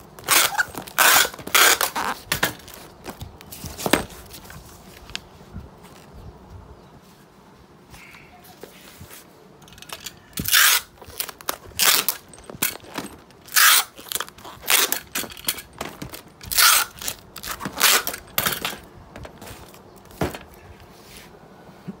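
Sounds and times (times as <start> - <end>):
packing tape ripping: 0.2 - 3.2, 10.4 - 18.8.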